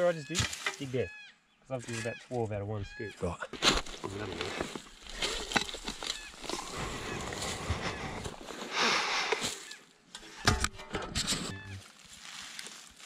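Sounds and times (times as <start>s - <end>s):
earth and straw rushing: 3.5s - 9.8s, 11.1s - 13.0s
shovel scraping into soil: 3.5s - 11.8s.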